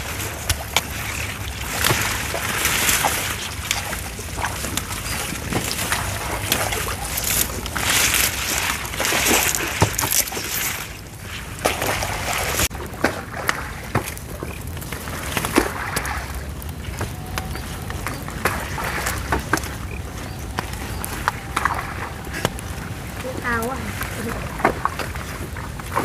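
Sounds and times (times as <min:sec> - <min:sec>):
plants rustling: 0:00.0 - 0:12.7, 0:14.4 - 0:26.0
stalks snapping: 0:00.3 - 0:11.0, 0:17.0 - 0:22.7.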